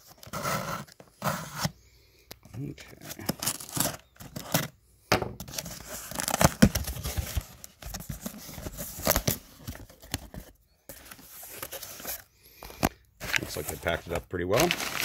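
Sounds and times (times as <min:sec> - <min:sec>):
paper packing rustling: 0:05.5 - 0:15.0
tape tearing: 0:14.5 - 0:15.0.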